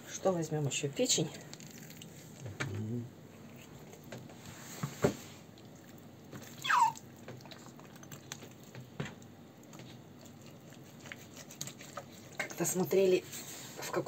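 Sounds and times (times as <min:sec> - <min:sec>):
dog whining: 0:06.4 - 0:07.7.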